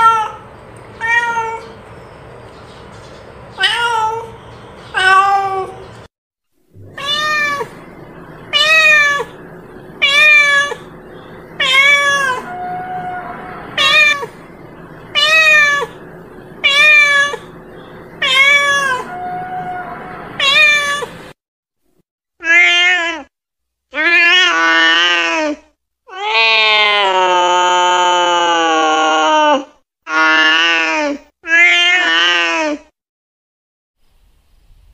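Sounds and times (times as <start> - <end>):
cat meowing: 1.0 - 1.8, 3.6 - 4.3, 4.9 - 5.8, 6.8 - 7.9, 8.5 - 9.4, 10.0 - 10.9, 11.6 - 14.4, 15.1 - 16.0, 16.6 - 17.6, 18.2 - 21.2.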